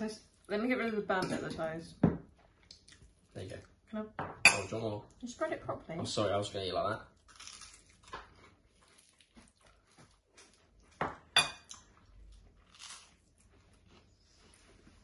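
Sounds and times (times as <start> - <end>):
toast being bitten and chewed: 7.2 - 11.0, 11.6 - 14.6
knife clinking against plate: 11.4 - 11.7.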